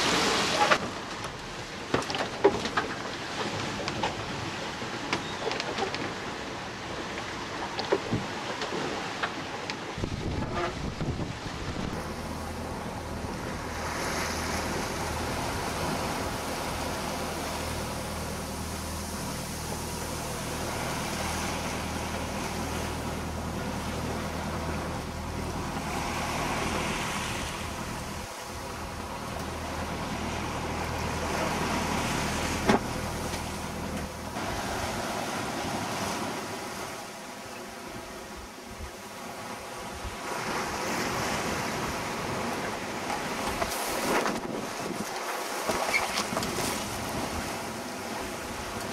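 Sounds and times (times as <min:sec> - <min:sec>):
sea wash surging: 0:00.0 - 0:48.9
wind buffeting microphone: 0:09.8 - 0:18.2
steady low hum: 0:11.0 - 0:40.4.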